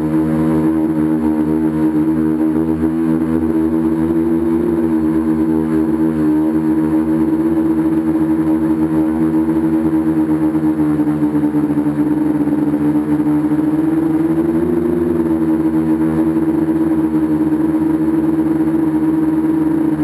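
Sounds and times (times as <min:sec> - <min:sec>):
drone motors and propellers humming: 0:00.0 - 0:20.0.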